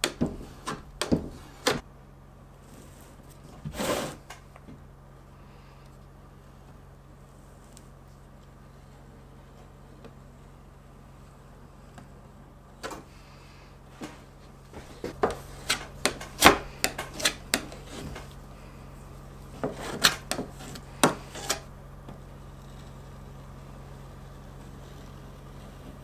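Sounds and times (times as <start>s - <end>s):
putty knife scraping glass: 14.8s - 18.4s, 19.5s - 21.7s.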